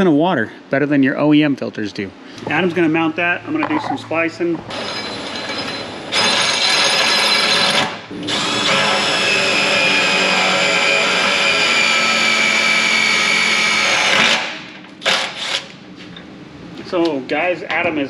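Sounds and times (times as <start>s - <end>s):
cordless drill boring into steel: 4.7s - 15.6s.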